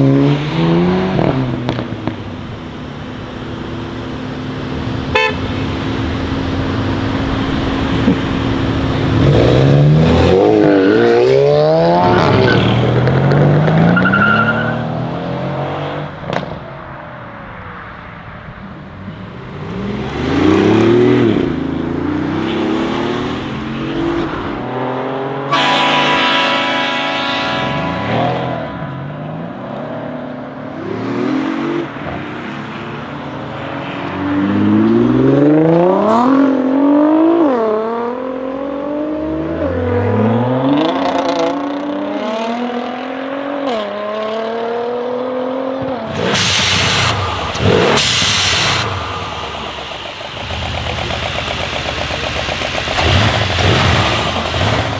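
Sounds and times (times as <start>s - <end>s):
car engine accelerating hard: 34.4s - 54.9s
exhaust crackles: 46.1s - 54.9s.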